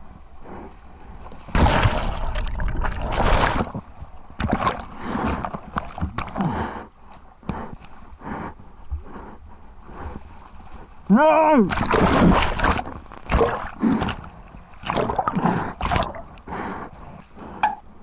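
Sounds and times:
seawater rushing and splashing: 0:01.5 - 0:03.8, 0:11.5 - 0:16.4.

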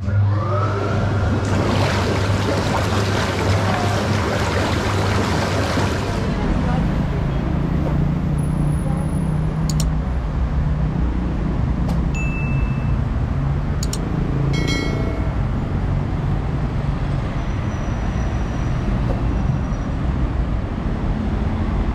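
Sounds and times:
city road traffic: 0:04.9 - 0:21.9
mouse-click sound effects: 0:09.6 - 0:10.0, 0:13.8 - 0:14.1
ringing bell chime: 0:12.2 - 0:13.1, 0:14.5 - 0:16.0.

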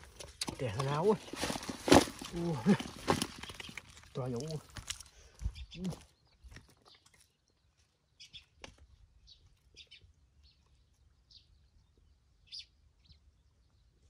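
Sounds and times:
faint bird chirps: 0:05.4 - 0:08.6, 0:09.2 - 0:14.0.

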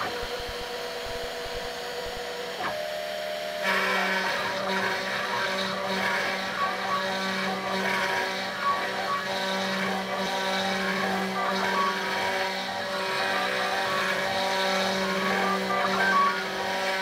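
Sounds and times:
bit cutting wood: 0:00.0 - 0:17.0
router motor hum: 0:00.0 - 0:17.0.

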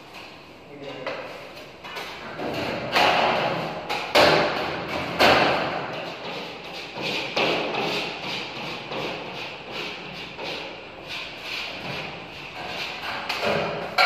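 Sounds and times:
loud thuds on drywall: 0:02.4 - 0:06.0.

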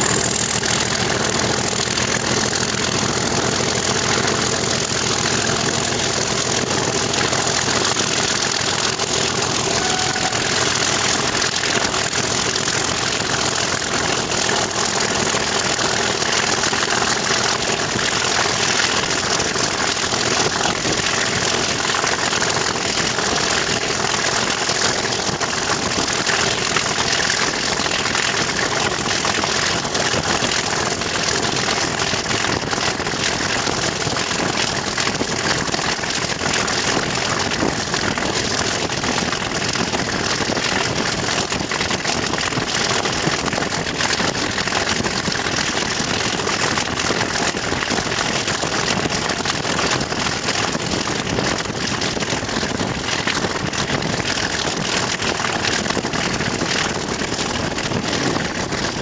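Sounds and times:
diesel locomotive engine: 0:00.0 - 0:59.0
wind on microphone: 0:00.0 - 0:59.0
rail noise: 0:09.2 - 0:13.6.

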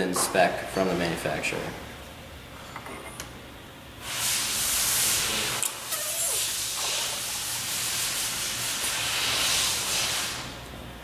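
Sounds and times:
compressed air hissing: 0:04.0 - 0:10.6.

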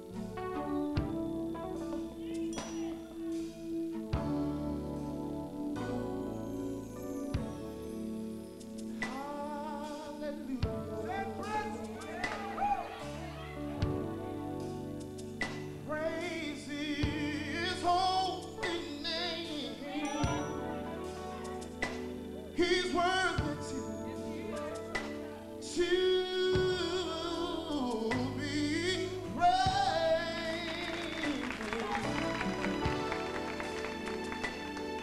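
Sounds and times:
instrumental accompaniment: 0:00.0 - 0:35.0
man singing gospel song: 0:08.9 - 0:14.6, 0:15.8 - 0:33.6.

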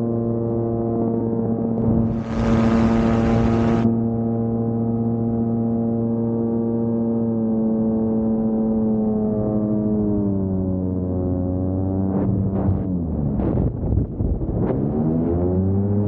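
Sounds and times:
gyroplane engine running: 0:01.8 - 0:03.9
wind noise rush: 0:01.8 - 0:03.9.

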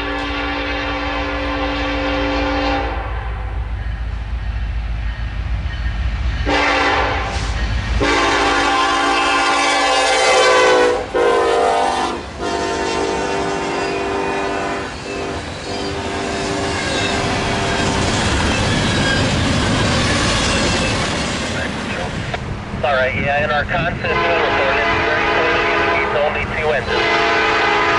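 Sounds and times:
train horn blasts: 0:00.0 - 0:03.5, 0:06.4 - 0:18.0, 0:24.1 - 0:27.9
train wheels rumbling and clicking: 0:12.2 - 0:25.0.

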